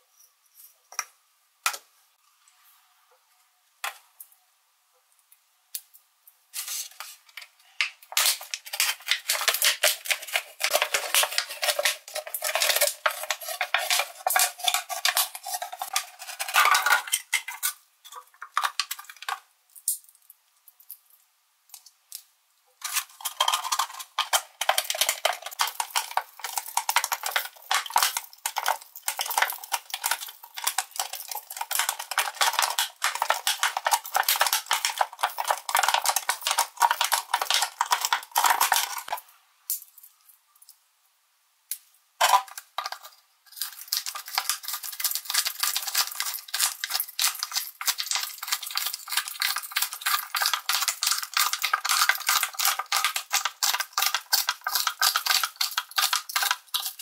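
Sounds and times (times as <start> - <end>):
knife cutting plastic: 6.6 - 19.1
plastic bottle crinkling: 6.6 - 19.5, 22.8 - 39.2.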